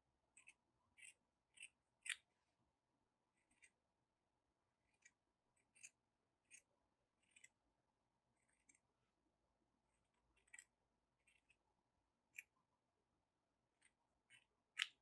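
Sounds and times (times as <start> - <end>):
scissors snipping fabric: 0.3 - 2.3, 4.8 - 7.6, 8.4 - 8.8, 10.1 - 11.6, 13.8 - 15.0.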